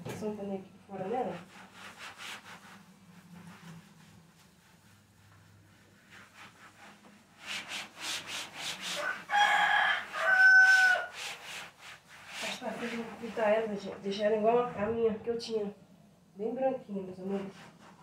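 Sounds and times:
cloth wiping refrigerator door: 0.2 - 15.5, 16.9 - 18.0
rooster crowing: 9.0 - 11.2.

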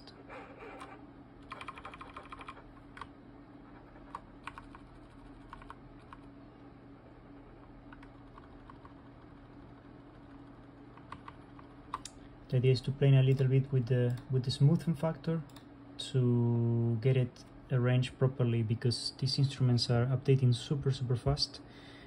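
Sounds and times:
faint steady hum: 0.0 - 22.0
keyboard keys tapping: 0.8 - 3.1, 4.0 - 6.3.

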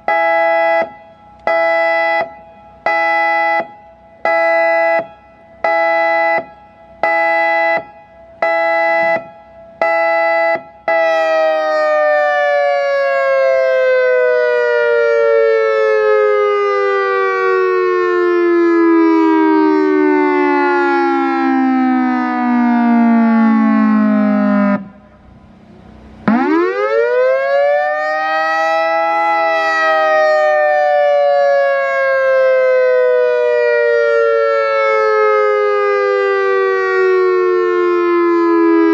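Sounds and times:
pulsing siren tone: 0.0 - 38.9
siren tone falling in pitch: 0.0 - 38.9.

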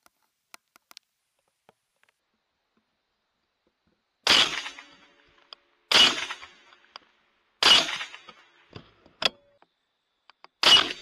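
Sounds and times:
rifle shots: 4.2 - 5.2, 5.9 - 6.9, 7.6 - 8.7, 10.6 - 11.0.

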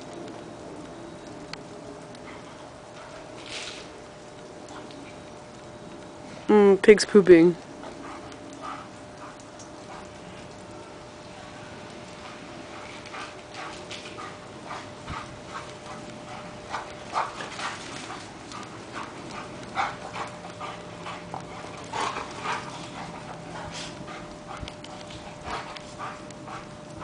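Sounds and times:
dogs breathing: 2.1 - 3.7, 7.8 - 10.6, 12.1 - 27.0.

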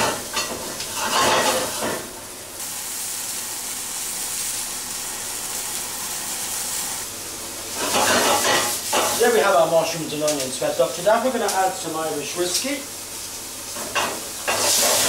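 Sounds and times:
vegetables sizzling in oil: 0.0 - 15.0.

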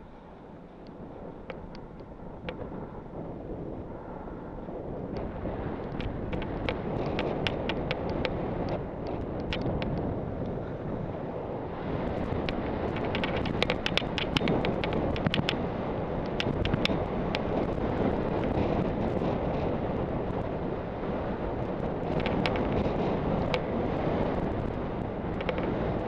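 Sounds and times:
wind on microphone: 0.0 - 26.0
sharp clicks: 12.4 - 15.6, 25.3 - 25.8.

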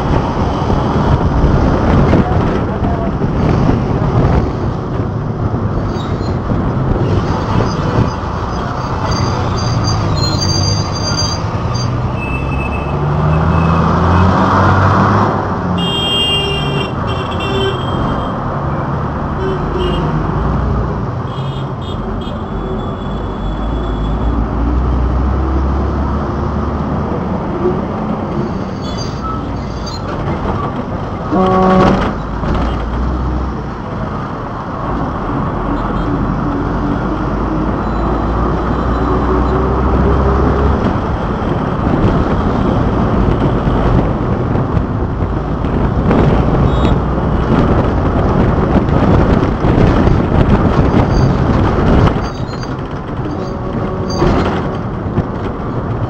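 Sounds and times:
engine and tyre noise: 0.0 - 56.0
vehicle horn honking: 15.8 - 18.3, 31.3 - 32.1.

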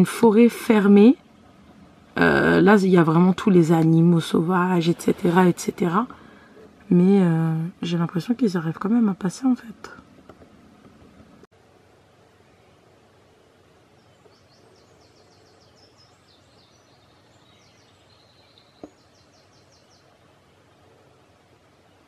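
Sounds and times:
faint trilling birdsong: 0.0 - 22.0
steady low hiss: 0.0 - 22.0.

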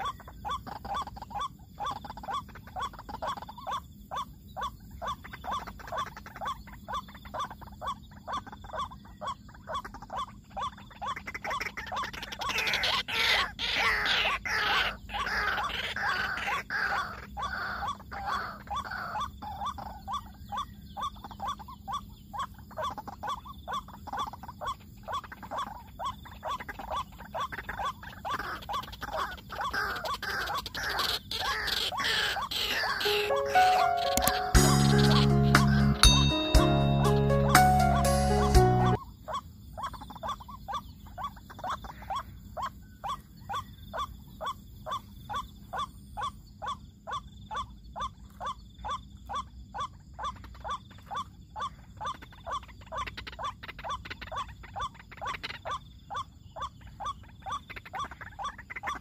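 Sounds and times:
waterhens harsh calls: 0.0 - 36.0.

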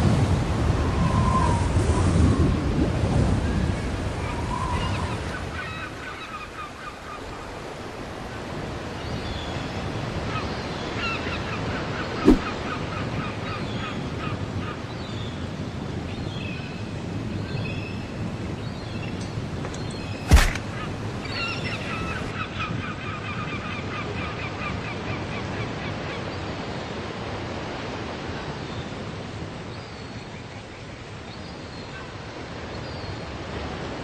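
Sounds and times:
waves washing in: 12.1 - 12.9, 20.1 - 22.3
foot stomping into sand: 12.2 - 12.6, 20.2 - 20.8.

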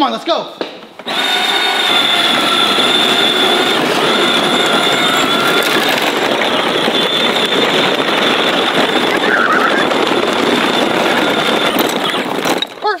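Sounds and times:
electric motor whining: 1.0 - 12.8
plastic wheels rolling over gravel: 1.1 - 13.0.

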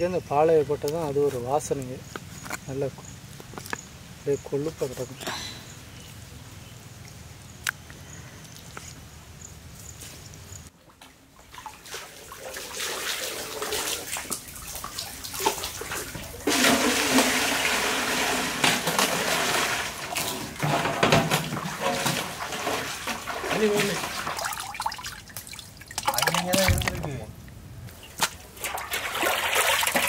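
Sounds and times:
water splashing: 10.8 - 30.0
water pouring into metal pan: 12.2 - 27.0, 28.6 - 30.0.

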